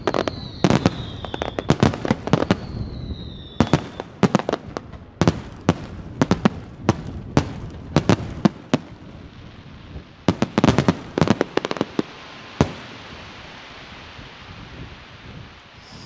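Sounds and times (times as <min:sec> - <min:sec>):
steady hiss: 0:09.3 - 0:16.0.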